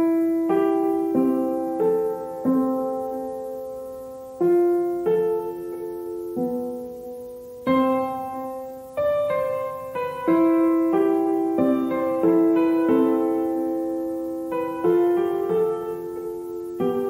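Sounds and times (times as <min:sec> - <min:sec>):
calm piano music: 0:00.0 - 0:17.0.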